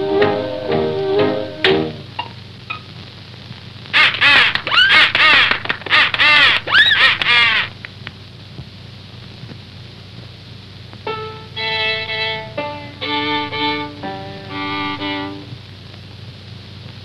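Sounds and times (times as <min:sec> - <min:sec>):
held musical notes: 0:00.0 - 0:02.3, 0:11.0 - 0:15.6
soundtrack hiss: 0:00.0 - 0:17.0
cartoon bird squawks: 0:04.0 - 0:07.7.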